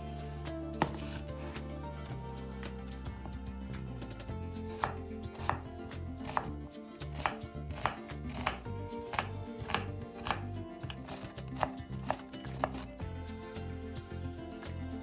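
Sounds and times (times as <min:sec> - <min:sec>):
knife slicing onion on board: 0:00.7 - 0:01.6, 0:04.7 - 0:13.0.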